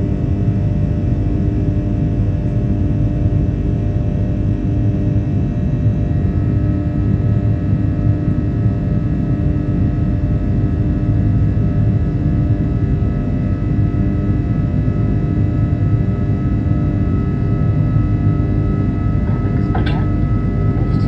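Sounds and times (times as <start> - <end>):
jet engine and airflow rumble: 15.3 - 21.0.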